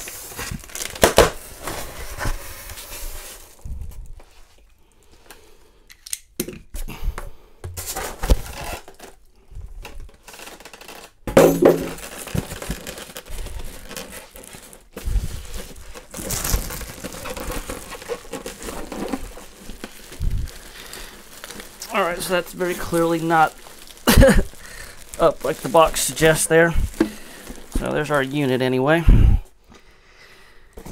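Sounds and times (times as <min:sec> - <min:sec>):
foam packing creaking: 0:00.0 - 0:04.2, 0:07.8 - 0:29.0
plastic bag crinkling: 0:08.4 - 0:28.9.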